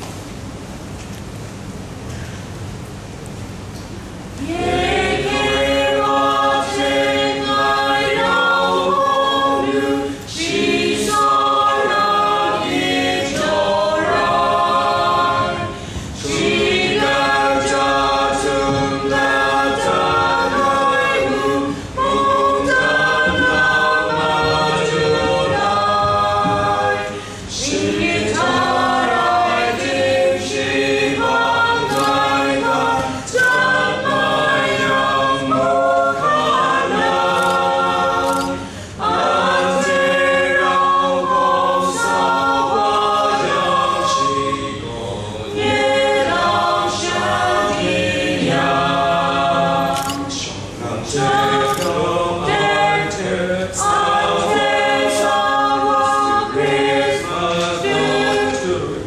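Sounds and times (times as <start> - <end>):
group singing unaccompanied: 4.4 - 59.0.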